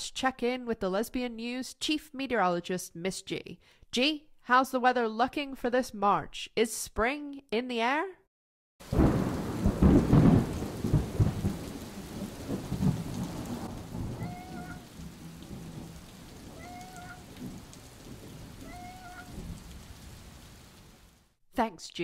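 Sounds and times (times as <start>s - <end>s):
thunder rumbling: 8.8s - 21.0s
steady rain: 8.8s - 21.4s
cat meowing: 14.2s - 14.9s, 16.6s - 17.3s, 18.6s - 19.4s.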